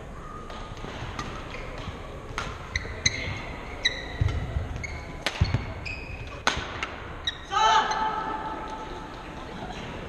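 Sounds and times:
rackets hitting shuttlecock: 0.5s - 7.2s
shoes squeaking on hardwood floor: 2.7s - 6.3s.

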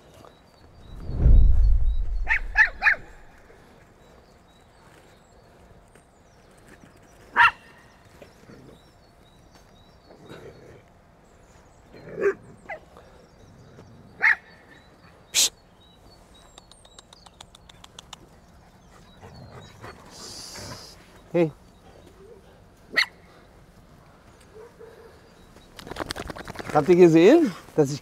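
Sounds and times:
dogs barking and yelping: 2.2s - 3.3s, 14.1s - 14.8s, 22.1s - 23.3s.

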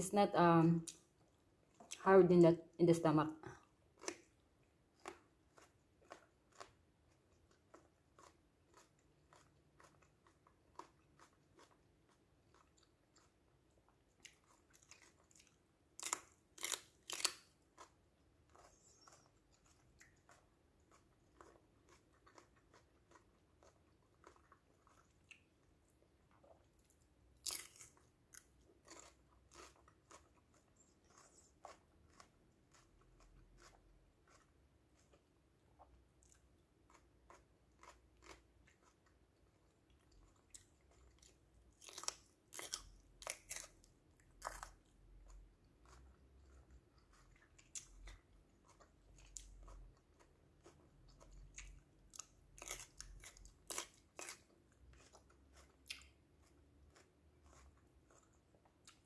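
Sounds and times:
chewing crunchy pepper: 3.4s - 59.0s.

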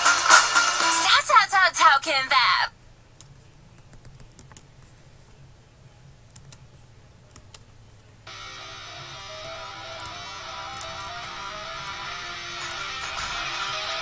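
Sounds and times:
keyboard clicks: 3.2s - 4.7s, 6.3s - 6.7s, 7.3s - 7.7s, 9.2s - 11.4s
rock song with guitar: 8.4s - 14.0s.

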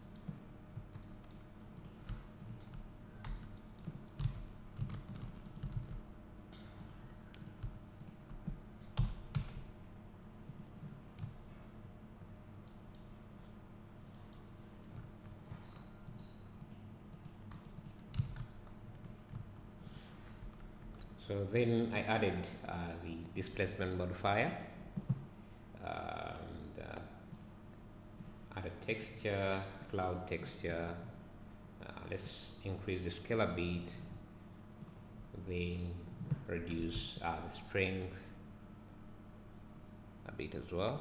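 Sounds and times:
faint low hum: 0.0s - 41.0s
keyboard and mouse clicks: 0.1s - 6.0s, 6.8s - 9.6s, 14.1s - 21.2s.

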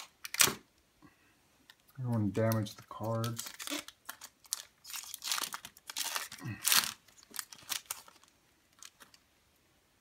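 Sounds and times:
foil wrapper tearing and crinkling: 2.6s - 9.2s.

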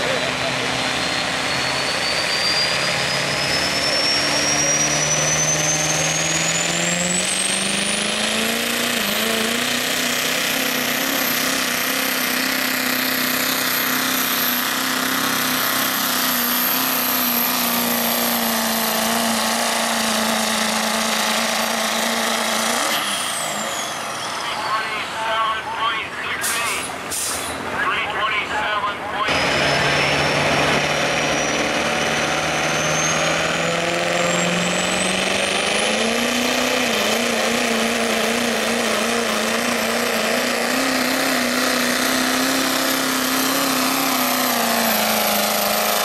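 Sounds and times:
diesel truck engine under load: 0.0s - 46.0s
turbocharger whistle: 0.1s - 8.2s.

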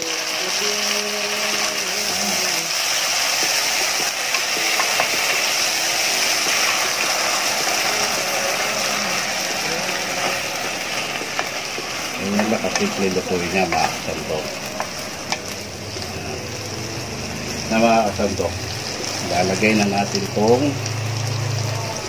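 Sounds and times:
food sizzling in a pan: 0.0s - 22.0s
wooden spoon scraping a pan: 2.9s - 15.6s.

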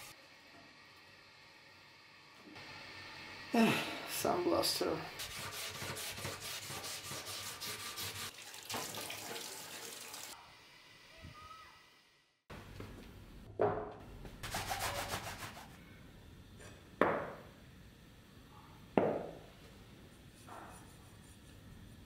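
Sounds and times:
knife blade rubbing on wood: 5.2s - 8.3s.

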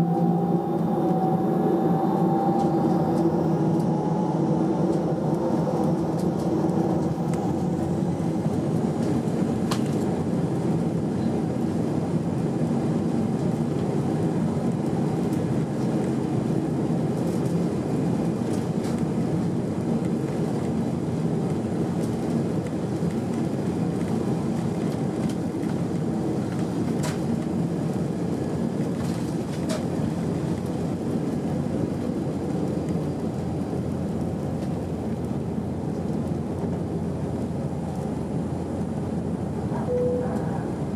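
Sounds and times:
undercarriage rumbling on runway: 0.0s - 39.8s
jet engines at takeoff thrust: 0.0s - 40.9s.

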